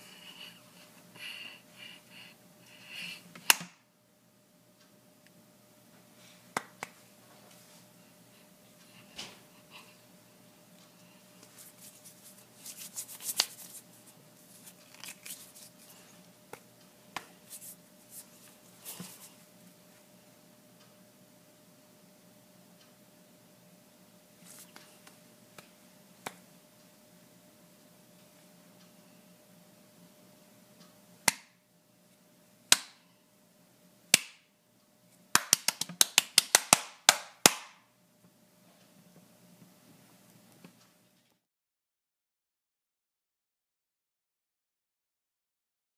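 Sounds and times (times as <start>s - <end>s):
hand claps: 6.6s - 7.0s, 32.7s - 33.0s, 34.1s - 34.4s, 35.4s - 37.8s
hands rubbing and slapping: 6.6s - 7.6s, 11.4s - 19.3s, 35.3s - 37.8s.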